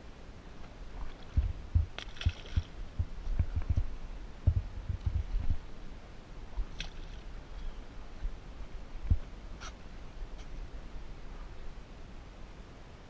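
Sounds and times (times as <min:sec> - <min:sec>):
dull low thumps and knocks: 0:01.0 - 0:05.7
fish splashing into water: 0:02.0 - 0:02.8.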